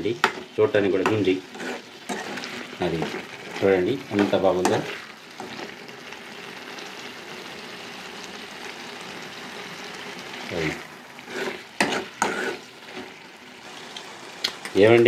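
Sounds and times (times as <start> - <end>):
curry sizzling in a pan: 0.0 - 15.0
metal spatula scraping a pan: 0.2 - 5.7, 11.2 - 13.2.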